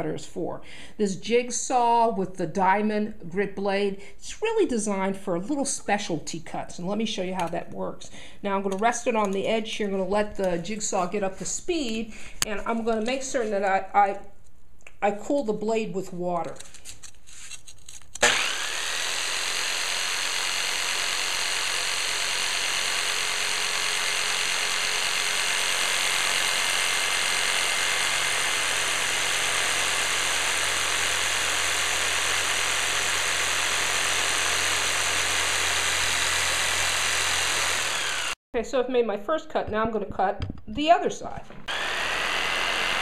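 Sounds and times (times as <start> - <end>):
jigsaw cutting ceramic tile: 16.5 - 38.4, 41.5 - 43.0.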